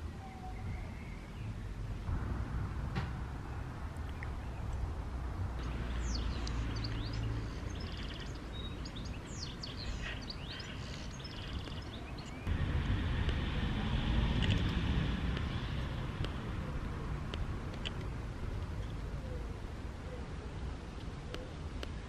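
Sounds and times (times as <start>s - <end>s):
songbirds chirping: 0.0s - 2.2s, 3.0s - 22.0s
low rumble: 2.0s - 7.6s, 12.4s - 18.9s.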